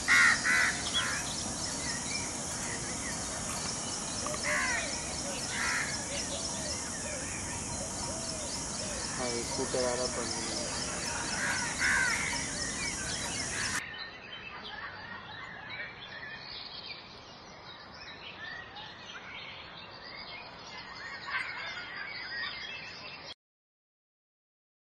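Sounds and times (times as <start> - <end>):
small birds chirping: 0.0 - 13.8.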